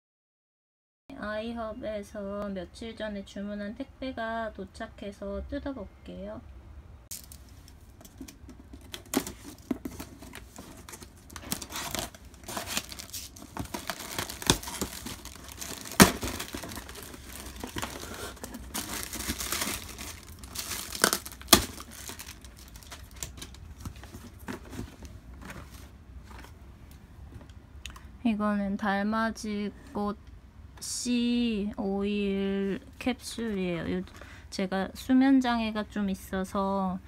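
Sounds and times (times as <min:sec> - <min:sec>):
plastic packing crinkling: 0:07.1 - 0:26.5
cardboard tearing: 0:08.8 - 0:24.9.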